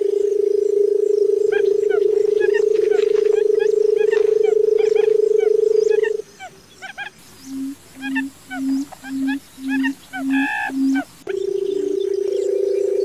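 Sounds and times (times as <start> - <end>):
bird drumming purr: 0.0 - 13.0
small birds chirping: 1.1 - 13.0
higher bird call: 5.9 - 12.4.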